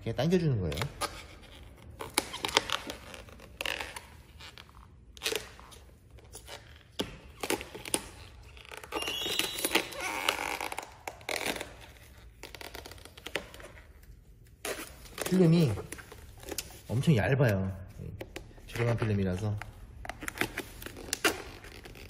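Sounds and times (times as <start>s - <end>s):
protective film peeling off: 0.8s - 16.9s.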